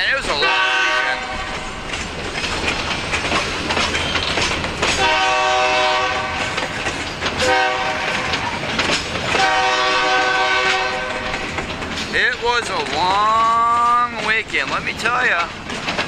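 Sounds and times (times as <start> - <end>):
train wheels clacking: 0.0 - 16.0
locomotive horn blasts: 0.3 - 1.6, 5.0 - 6.6, 7.4 - 8.4, 9.3 - 11.4.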